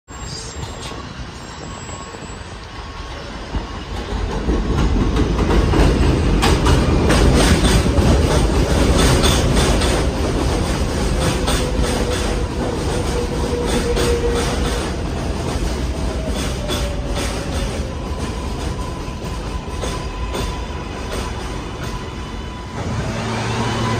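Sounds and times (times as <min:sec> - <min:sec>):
thin steady brake squeal: 0:00.1 - 0:03.5
subway train wheels rumbling on rails: 0:00.1 - 0:23.9.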